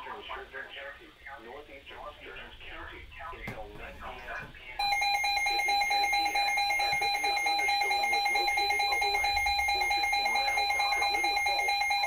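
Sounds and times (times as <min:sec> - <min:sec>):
alert radio alarm tones: 0:04.8 - 0:12.0.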